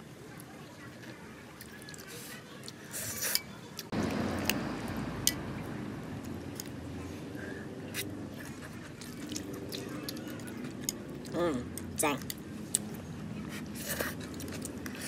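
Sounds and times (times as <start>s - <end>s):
low background noise: 0.0s - 15.0s
chewing and crunching: 0.3s - 4.6s, 7.9s - 15.0s.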